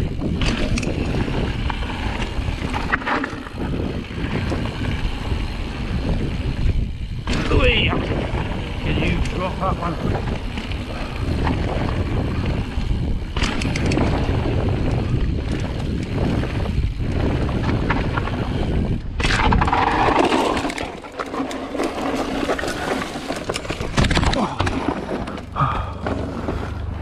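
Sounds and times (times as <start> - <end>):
wind rush on microphone: 0.0 - 21.0
bike clicks and rattles: 0.0 - 27.0
bike tyres rumbling over stones: 0.0 - 27.0.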